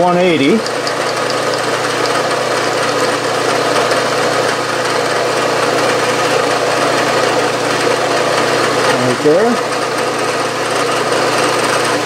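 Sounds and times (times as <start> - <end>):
milling machine whirring: 0.0 - 12.0.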